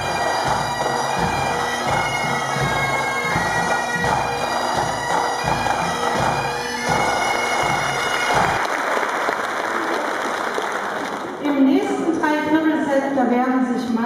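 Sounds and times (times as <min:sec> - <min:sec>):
bagpipes playing: 0:00.0 - 0:08.6
snare drums: 0:00.0 - 0:08.6.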